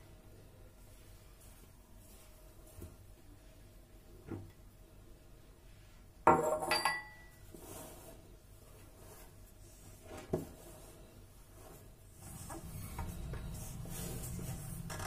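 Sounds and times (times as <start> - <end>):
metal bowl clattering on counter: 6.3 - 7.3.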